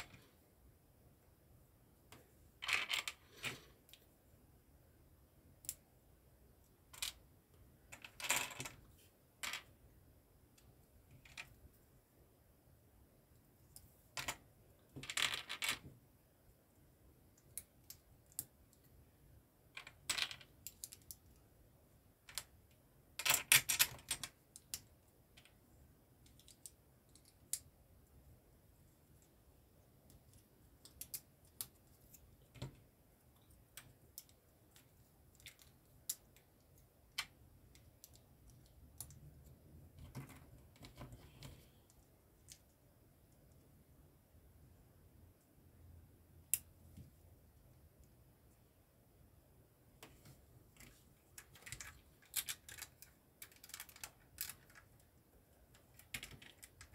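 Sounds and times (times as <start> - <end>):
plastic bricks clicking and clattering: 14.2 - 15.9, 51.4 - 55.0.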